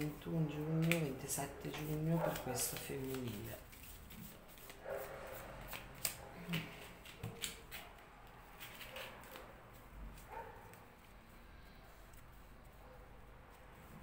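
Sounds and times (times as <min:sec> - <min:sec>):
cards being shuffled: 0:00.0 - 0:10.9.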